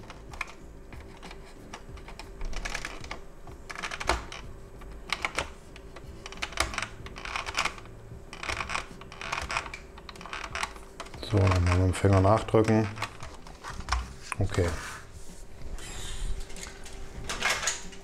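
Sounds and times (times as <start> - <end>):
screwdriver scraping plastic: 5.0 - 14.8.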